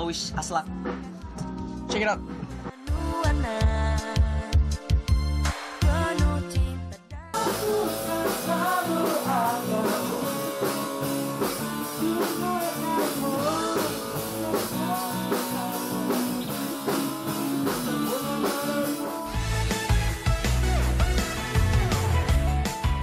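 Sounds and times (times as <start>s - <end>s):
guitar accompaniment: 0.0s - 23.0s
deep bass: 0.6s - 10.4s, 19.3s - 23.0s
young men singing together: 7.4s - 19.3s.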